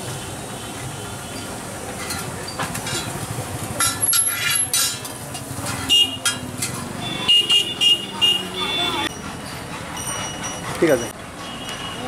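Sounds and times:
steady background noise: 0.0s - 12.0s
metal spatula scraping on griddle: 1.4s - 7.0s.

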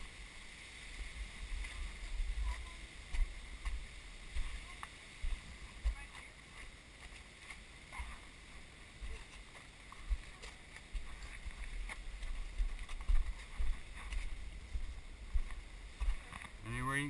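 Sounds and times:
faint clicks and scuffs: 9.1s - 14.4s
footsteps thumping: 9.1s - 16.4s.

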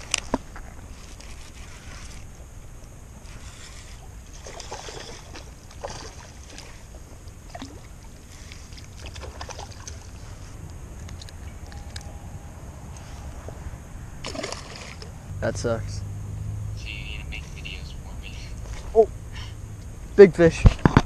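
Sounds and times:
fish splashing: 3.6s - 10.4s, 14.2s - 15.2s
wind rumble on microphone: 10.0s - 14.3s.

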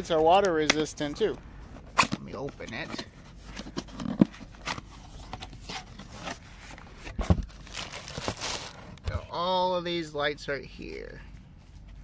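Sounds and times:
plastic bag crinkling: 7.4s - 9.0s.

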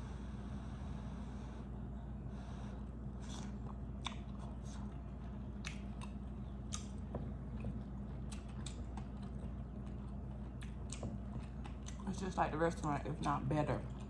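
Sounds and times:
steady low hum: 0.0s - 14.0s
close-up chewing: 3.2s - 14.0s
wet clicks and smacks: 4.0s - 4.5s, 5.6s - 9.4s.

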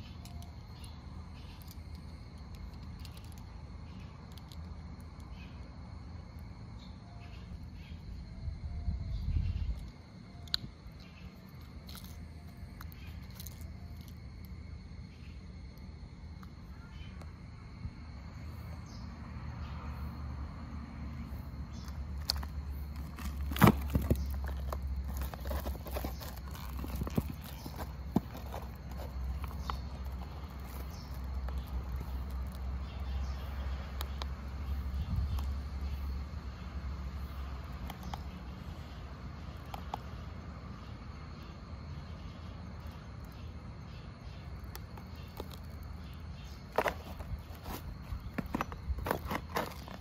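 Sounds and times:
thin plastic crinkling and clicking: 1.5s - 3.5s, 4.2s - 5.3s, 9.7s - 14.6s, 21.8s - 32.7s, 44.6s - 46.0s, 46.7s - 50.0s.

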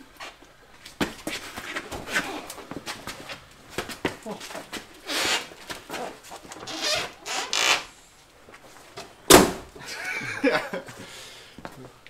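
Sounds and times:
tractor tyre scraping and rustling: 1.0s - 9.2s
heavy thud of tyre set down: 9.3s - 9.8s.

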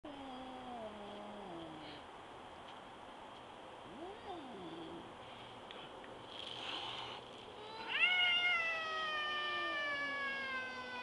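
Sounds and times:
cat yowling: 7.7s - 11.0s.

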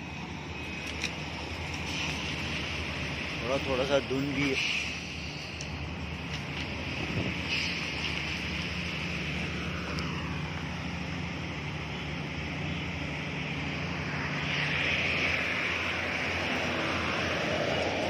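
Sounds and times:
bus passing on wet road: 0.0s - 18.0s
traffic engine hum: 0.0s - 18.0s
wind on microphone: 6.6s - 8.0s.

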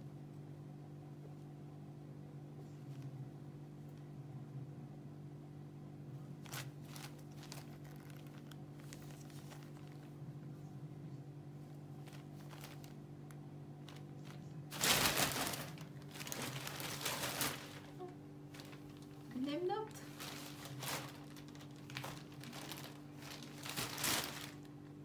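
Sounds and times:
plastic bag rustling: 6.4s - 10.3s, 11.7s - 25.0s.

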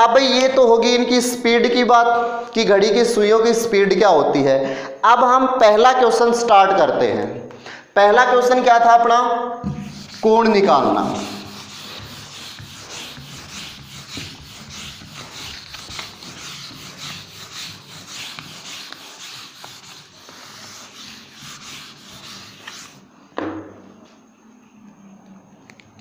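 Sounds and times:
eraser rubbing on whiteboard: 9.7s - 23.0s.

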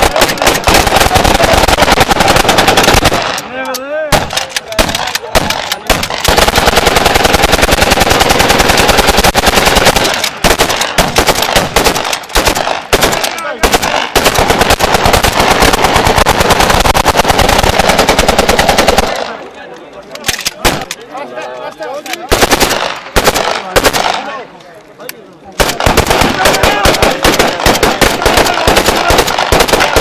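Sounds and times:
automatic gunfire bursts: 0.0s - 3.5s, 4.1s - 19.3s, 22.3s - 24.3s, 25.6s - 30.0s
single gunshots: 4.1s - 19.3s, 22.3s - 24.4s, 25.6s - 30.0s.

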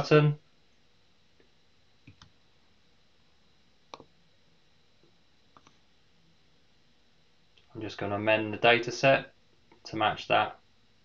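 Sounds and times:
computer mouse clicks: 2.0s - 2.3s, 3.9s - 4.1s, 5.5s - 5.8s.

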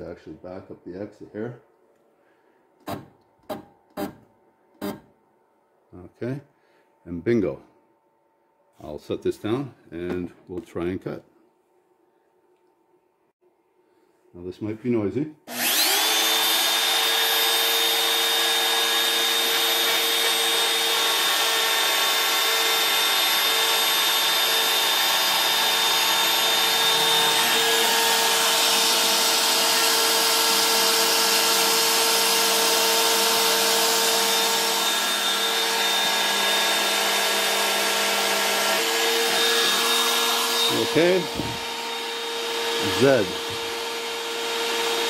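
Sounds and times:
router spindle whine: 15.5s - 45.0s.

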